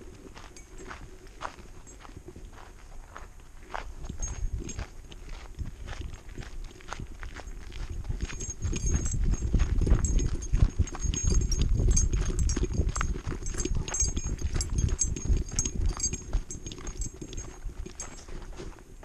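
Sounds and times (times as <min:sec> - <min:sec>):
dog footfalls on dirt trail: 0:00.0 - 0:19.0
metallic collar clinks: 0:00.5 - 0:01.0, 0:04.1 - 0:05.0, 0:07.4 - 0:18.7.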